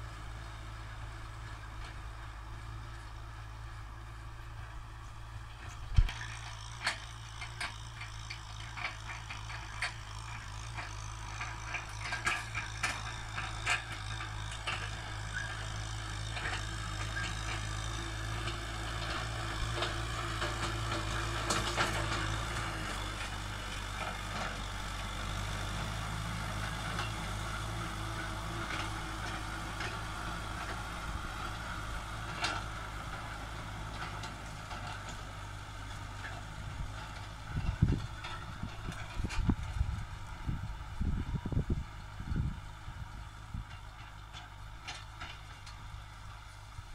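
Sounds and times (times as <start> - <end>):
tractor diesel engine under load: 0.0 - 46.9.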